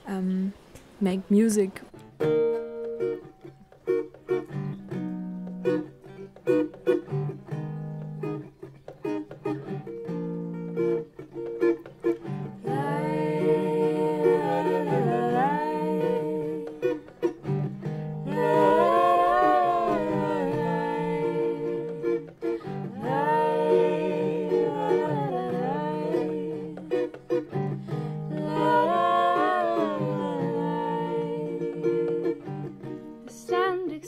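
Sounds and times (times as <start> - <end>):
acoustic guitar: 0.0 - 34.0
man and woman singing: 12.6 - 17.1, 18.2 - 34.0.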